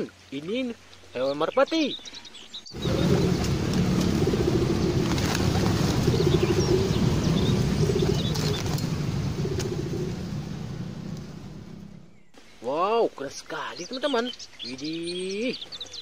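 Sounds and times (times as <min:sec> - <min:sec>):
higher bird chirps: 0:01.3 - 0:12.6
pigeons cooing: 0:02.7 - 0:12.2
wings flapping: 0:02.8 - 0:12.0.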